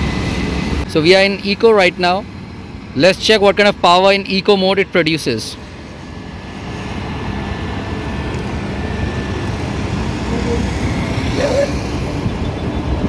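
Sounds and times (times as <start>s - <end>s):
electric scooter speeding up: 0.0s - 13.0s
road noise: 0.0s - 13.0s
wind rush on microphone: 5.8s - 13.0s.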